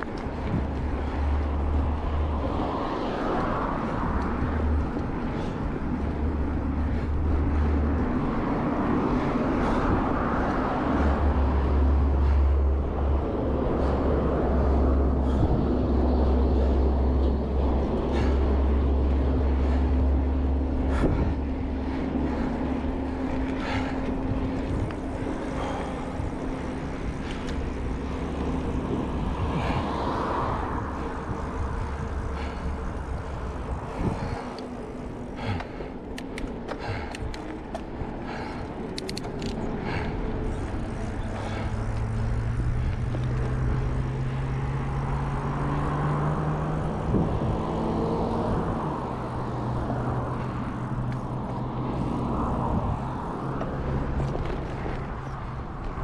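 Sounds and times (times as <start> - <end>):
road traffic: 0.0 - 56.0
vehicle engine hum approaching: 0.0 - 56.0
wind buffeting camera: 0.0 - 56.0
light clicks: 38.6 - 39.6.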